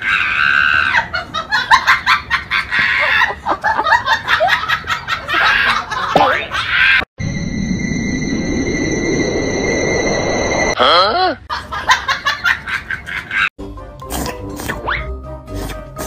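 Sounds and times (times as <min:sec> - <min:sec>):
person laughing hard: 0:00.7 - 0:07.0.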